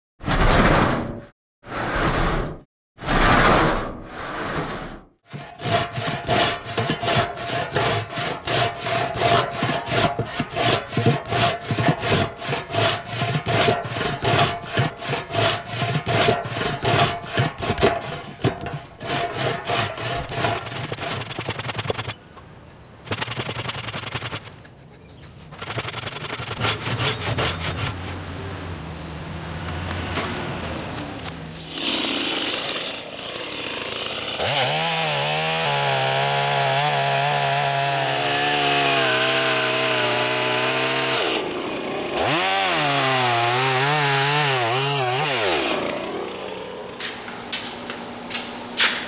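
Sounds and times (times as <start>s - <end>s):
rip saw rasping through wood: 5.3s - 22.2s, 23.1s - 24.5s, 25.6s - 28.2s, 31.7s - 41.5s, 42.2s - 46.0s.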